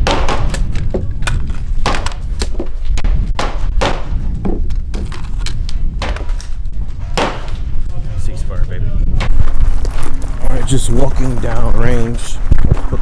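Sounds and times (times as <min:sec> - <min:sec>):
gunshots: 0:00.0 - 0:00.9, 0:01.8 - 0:02.3, 0:03.0 - 0:04.2, 0:07.0 - 0:07.7
wind rumble on microphone: 0:00.0 - 0:13.0.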